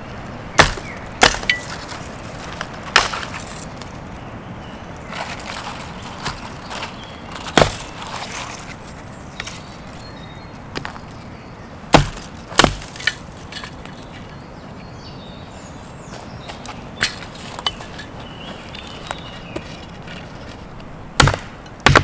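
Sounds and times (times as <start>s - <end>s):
hatchet chopping branch: 0.5s - 3.6s, 7.3s - 8.6s, 11.9s - 13.7s, 21.2s - 22.0s
wood cracking and snapping: 0.6s - 3.9s, 5.2s - 8.6s, 11.9s - 13.7s.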